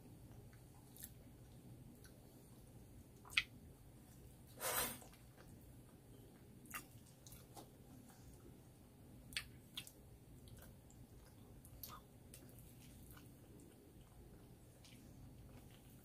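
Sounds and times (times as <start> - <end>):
person chewing: 3.2 - 3.5, 6.4 - 8.3, 9.3 - 16.0.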